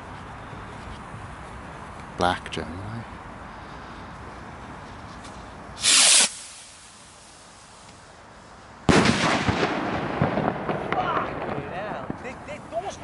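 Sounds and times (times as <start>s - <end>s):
firework rocket whoosh: 5.8s - 8.0s
firework shell bang: 8.9s - 12.2s.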